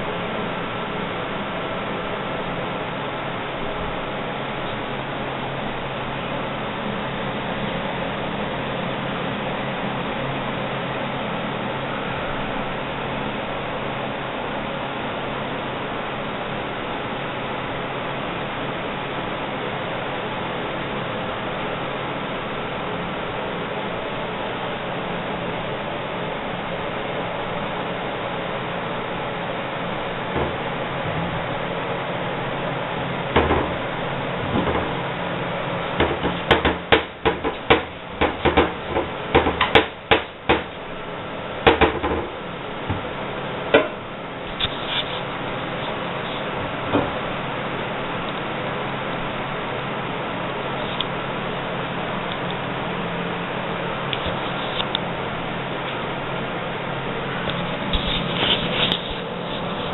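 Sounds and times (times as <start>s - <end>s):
steady hiss: 0.0s - 59.9s
cabinet doors knocking and rattling: 33.4s - 33.8s, 36.0s - 40.7s, 41.7s - 42.3s.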